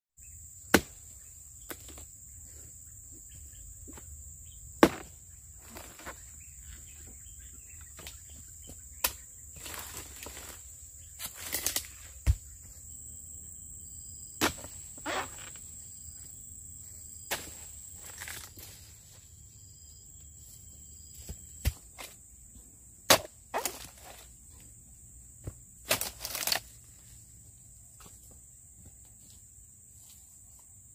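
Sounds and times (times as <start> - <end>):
chisel chopping palm fronds: 0.7 - 1.0, 4.8 - 5.1, 11.2 - 12.4, 14.4 - 15.3, 23.1 - 24.2, 25.8 - 26.7.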